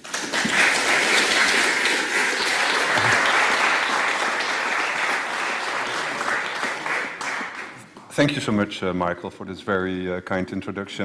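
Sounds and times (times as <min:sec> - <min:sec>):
audience applauding: 0:00.0 - 0:08.0.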